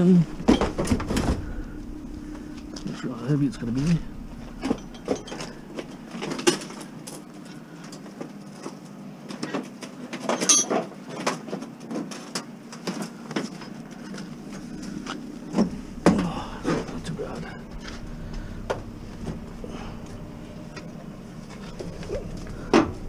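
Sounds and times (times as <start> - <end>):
steady low hum: 0.0 - 9.9, 12.6 - 23.0.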